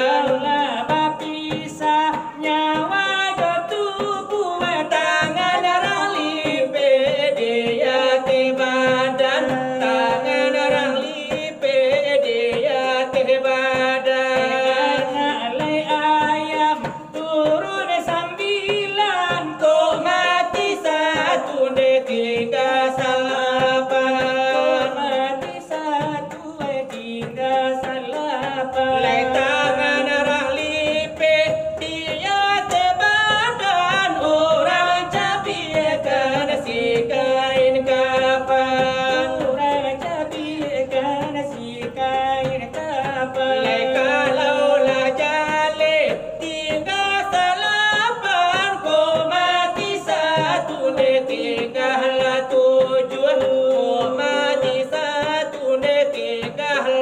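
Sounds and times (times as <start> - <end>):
men singing a devotional chant: 0.0 - 57.0
hands striking brass trays: 12.4 - 57.0.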